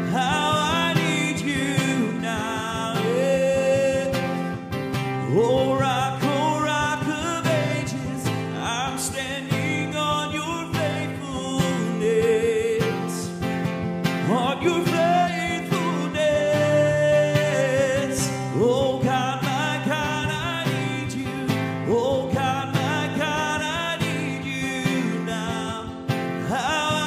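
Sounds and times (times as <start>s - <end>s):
acoustic guitar strumming: 0.0s - 27.0s
man singing: 0.0s - 27.0s.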